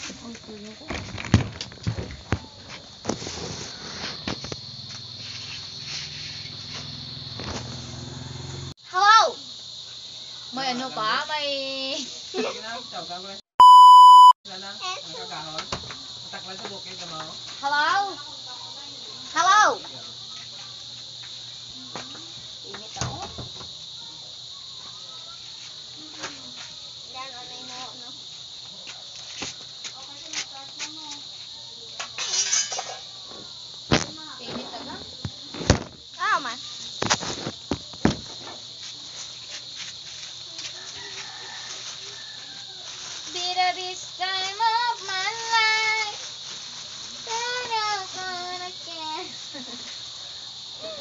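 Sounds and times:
high-pitched insect chirring: 8.9s - 51.0s
thump: 23.0s - 23.7s, 33.9s - 36.0s, 37.0s - 38.6s.

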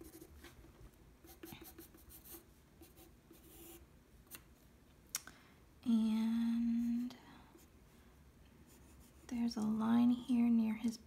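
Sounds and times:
pencil scratching on paper: 0.0s - 0.5s, 1.2s - 3.8s.

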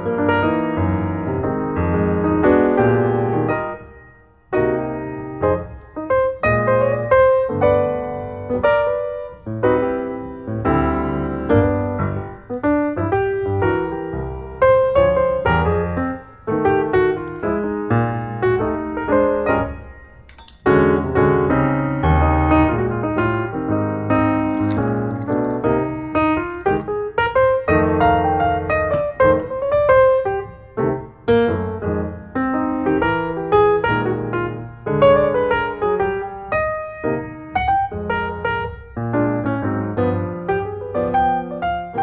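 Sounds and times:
piano music: 0.0s - 42.0s.

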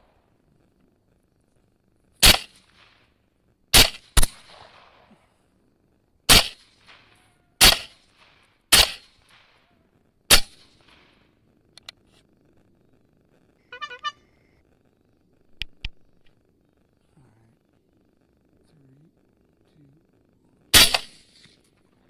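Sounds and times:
rifle shots echoing: 2.2s - 3.1s, 3.7s - 5.3s, 6.3s - 9.7s, 10.3s - 11.3s, 20.7s - 21.6s
faint clicks: 9.2s - 20.7s.

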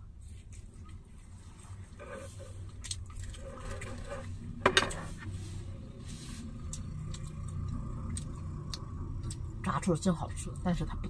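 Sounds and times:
steady low hum: 0.0s - 11.0s
chewing: 0.3s - 4.6s, 6.5s - 9.6s
chopsticks clicking against bowls: 6.6s - 9.5s.

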